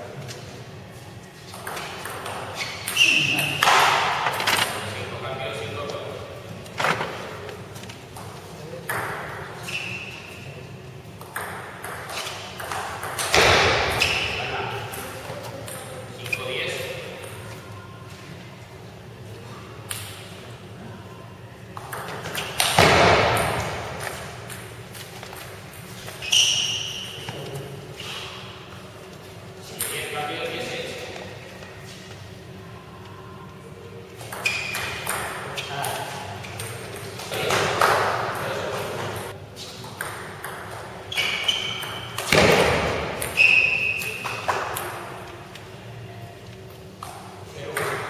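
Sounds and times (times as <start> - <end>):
shoe squeaks: 2.4 - 3.7, 9.6 - 10.6, 13.9 - 14.7, 25.9 - 28.5, 34.2 - 36.6, 41.1 - 42.4, 43.2 - 44.5
short high squeak: 9.6 - 10.2, 26.2 - 27.3, 41.1 - 42.2, 43.4 - 44.2.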